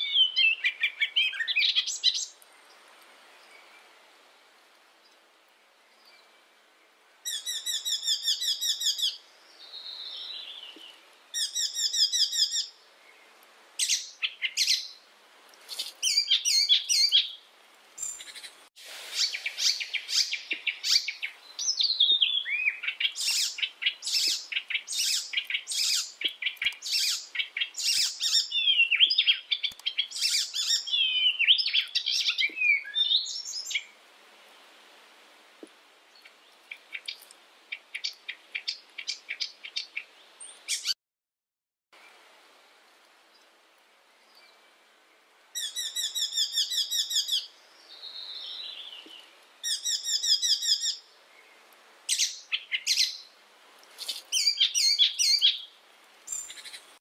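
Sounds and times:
warbler singing: 0.0 - 2.4, 15.7 - 17.4, 19.2 - 33.9, 54.0 - 55.7.

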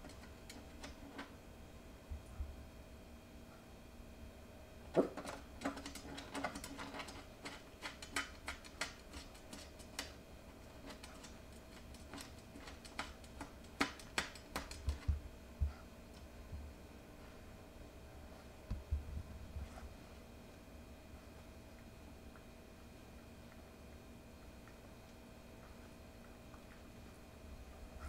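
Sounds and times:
puppy claws tapping on glass: 10.9 - 15.2.

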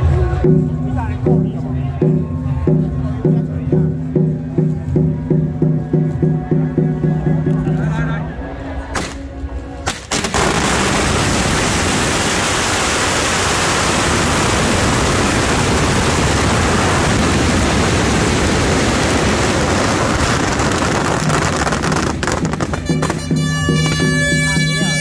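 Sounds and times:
firecrackers crackling: 9.0 - 25.0.

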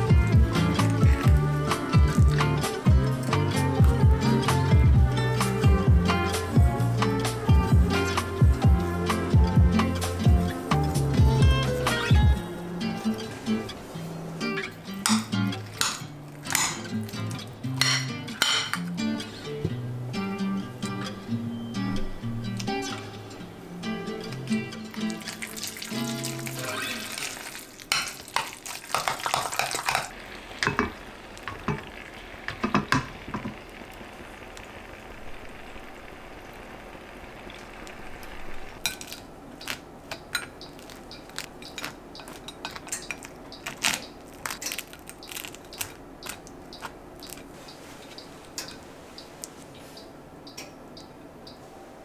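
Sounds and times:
food sizzling in frying pan: 25.2 - 38.8.

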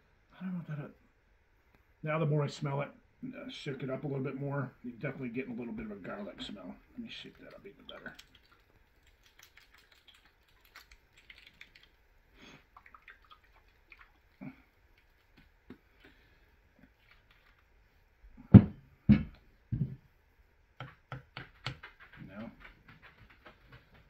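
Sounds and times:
faint clicks and rustles: 6.0 - 18.0, 21.3 - 24.0
loud short thumps: 18.5 - 20.0.

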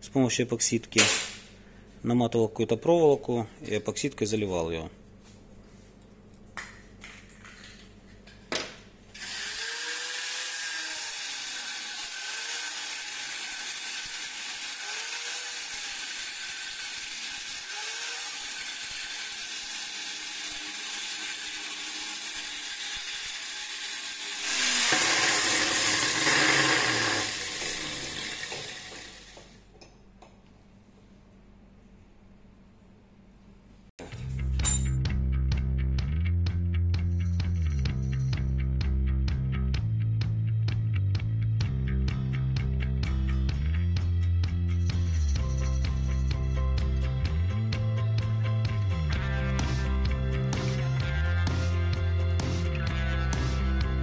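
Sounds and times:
bench grinder grinding plastic: 9.2 - 29.5.

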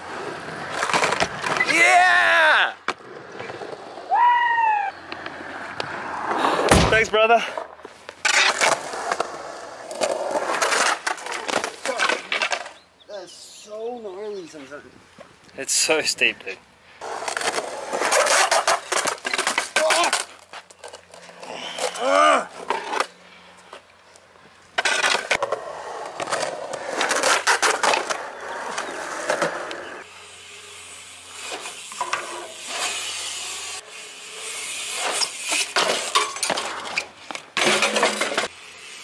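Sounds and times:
skateboard wheels rolling on concrete: 0.0 - 39.0
person shouting: 1.6 - 2.8, 4.1 - 4.9, 22.0 - 22.5.

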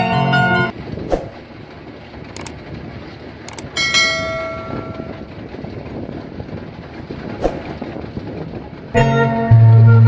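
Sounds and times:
combine harvester machine noise: 0.7 - 4.4.

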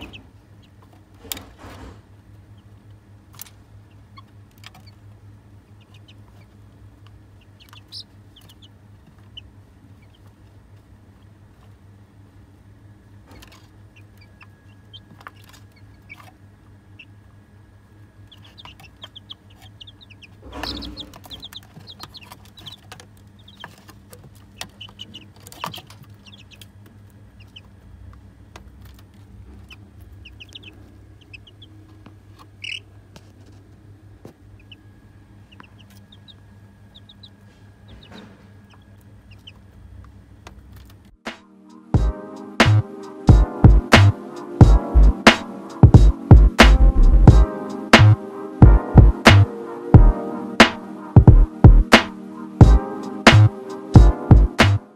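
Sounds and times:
chicks peeping and clucking: 0.0 - 1.9, 2.5 - 11.7, 13.2 - 17.3, 18.2 - 27.9, 28.5 - 33.7, 34.3 - 39.8
low hum: 41.1 - 54.9.

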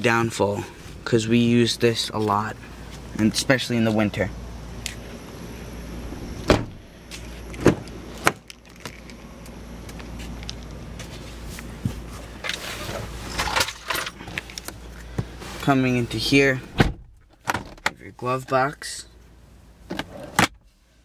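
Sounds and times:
low steady hum: 0.0 - 21.0
car door clunks and clicks: 6.4 - 6.8, 16.7 - 18.0.

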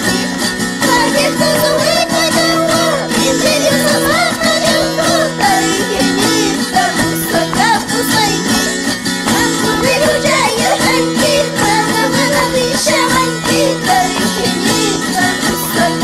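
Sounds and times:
strummed small guitar: 0.0 - 16.0
voices singing: 0.0 - 16.0.

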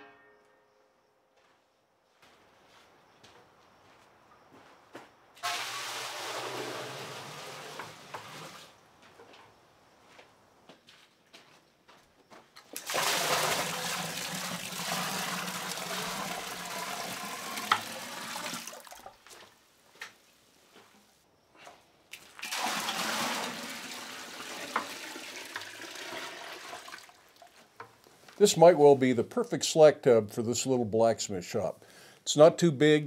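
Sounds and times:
water splashing into metal keg: 5.4 - 8.8, 12.8 - 19.2, 22.1 - 27.5.

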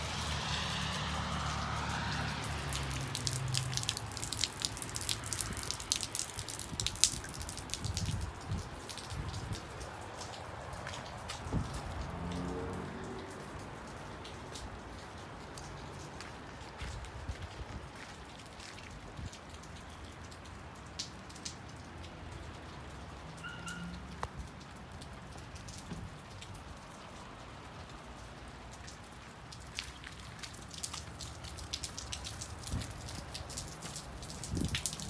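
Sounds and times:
sharp ticks of raindrops: 0.0 - 35.0
steady rain falling: 0.0 - 35.0
wind rumble on microphone: 5.4 - 9.9, 11.3 - 12.3, 32.6 - 33.4, 34.3 - 35.0.

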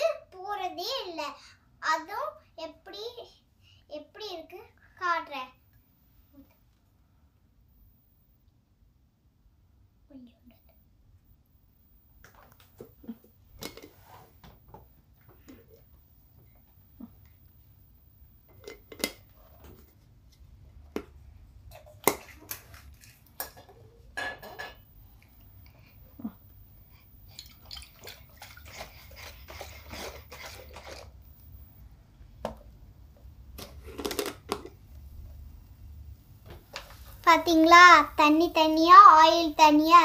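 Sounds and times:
liquid sloshing in shaken jar: 27.3 - 31.2.

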